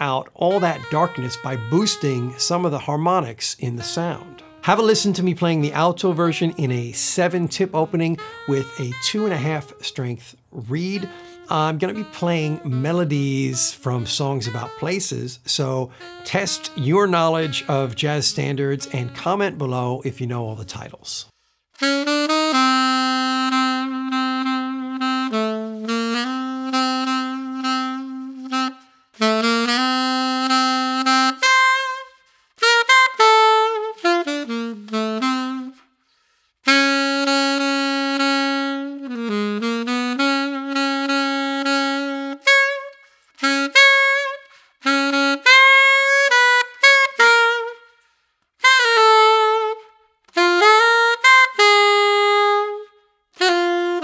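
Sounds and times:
solo alto saxophone melody: 0:00.0 - 0:54.0
saxophonist breathing: 0:08.2 - 0:08.5, 0:10.4 - 0:11.5, 0:15.9 - 0:16.2, 0:21.2 - 0:21.8, 0:32.1 - 0:32.6, 0:35.8 - 0:36.7, 0:42.9 - 0:43.4, 0:44.4 - 0:44.8, 0:47.8 - 0:48.6.

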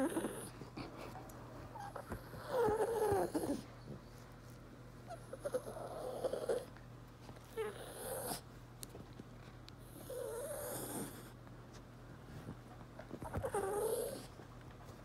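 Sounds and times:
dog whining nasally: 0:00.0 - 0:00.6, 0:01.7 - 0:03.8, 0:05.0 - 0:06.7, 0:07.5 - 0:08.5, 0:09.9 - 0:11.3, 0:13.2 - 0:14.3.

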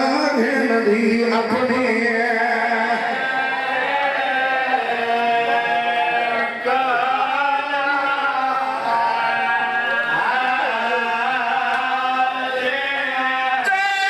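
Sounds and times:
man chanting a lament: 0:00.0 - 0:14.0.

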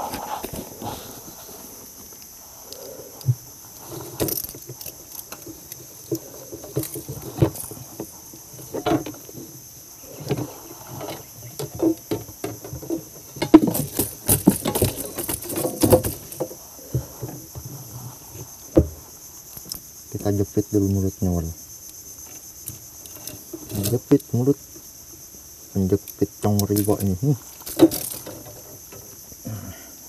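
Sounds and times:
high insect drone: 0:00.0 - 0:30.0
knocks and thumps on wooden boat: 0:18.7 - 0:19.0.

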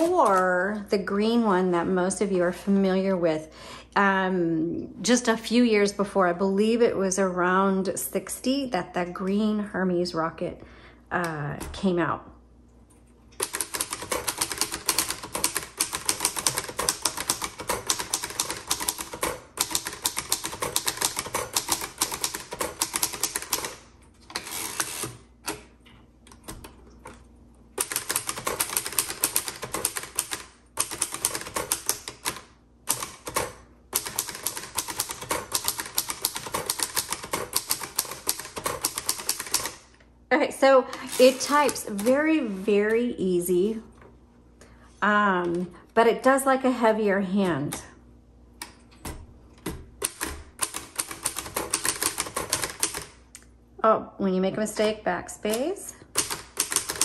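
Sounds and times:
manual typewriter typing: 0:13.4 - 0:25.6, 0:27.8 - 0:39.9, 0:41.1 - 0:42.3, 0:49.6 - 0:53.2, 0:55.5 - 0:57.0.

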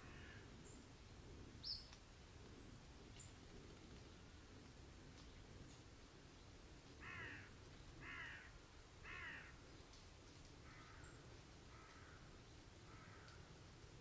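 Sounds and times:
crow cawing: 0:00.0 - 0:00.4, 0:07.0 - 0:09.6, 0:10.6 - 0:12.3, 0:12.9 - 0:13.5.

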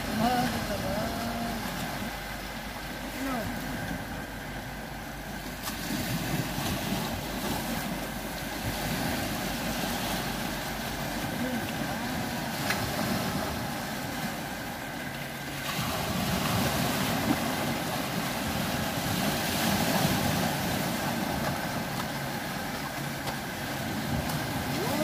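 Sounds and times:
sea waves washing on rocks: 0:00.0 - 0:25.0
wind on microphone: 0:15.7 - 0:25.0.

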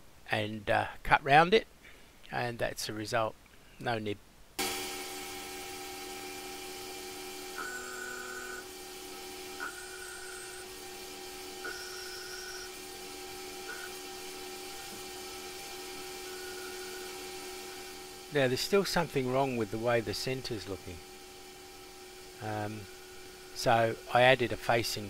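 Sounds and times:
lathe hum with steady tones: 0:04.6 - 0:25.0
short high whine with click: 0:09.5 - 0:10.8.

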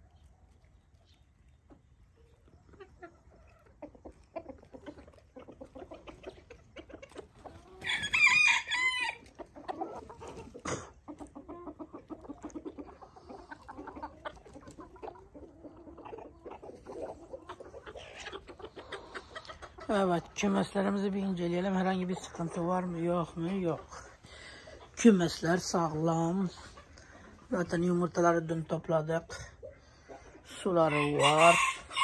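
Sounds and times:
chickens clucking: 0:00.0 - 0:32.0
rooster crowing: 0:07.8 - 0:09.2, 0:31.0 - 0:32.0.

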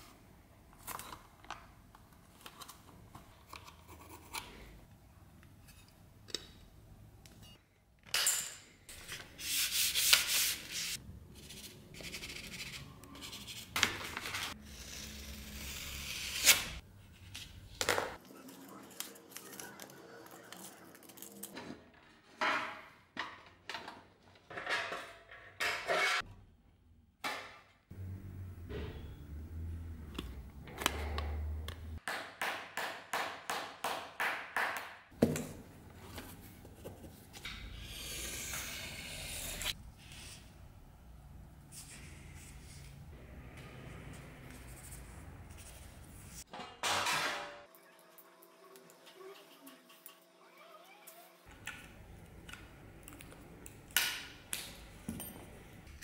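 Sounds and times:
paper rustling: 0:13.8 - 0:14.6.

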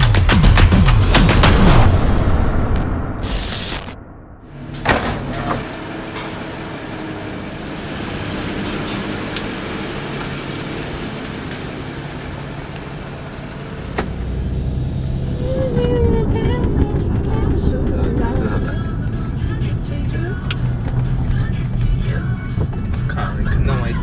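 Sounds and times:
car running with low hum: 0:04.4 - 0:24.0
vehicle door shutting: 0:04.6 - 0:06.4.

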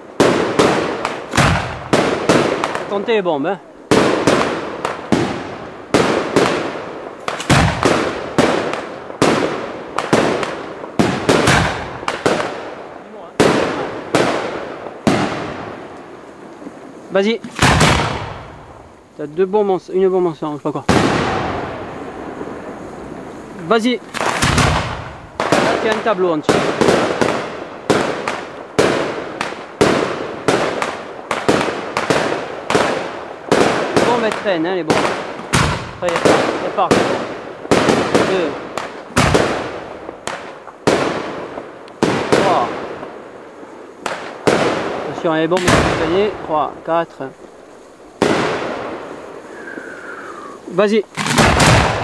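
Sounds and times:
firework shells bangs echoing: 0:00.0 - 0:52.0.

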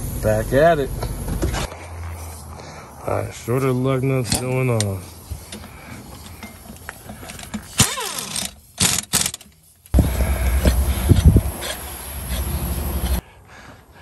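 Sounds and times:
impact wrench whining and hammering: 0:04.2 - 0:13.2.

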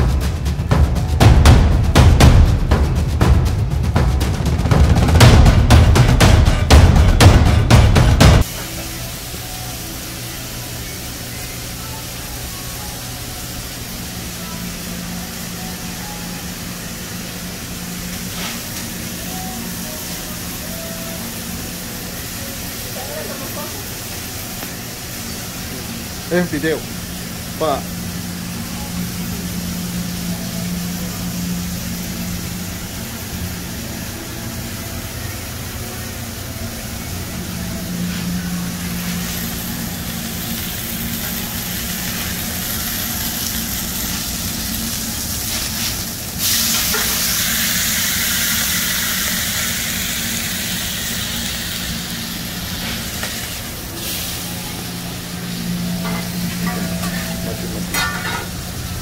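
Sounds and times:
oil and meat sizzling: 0:08.4 - 0:59.0
steady low hum: 0:23.9 - 0:59.0.

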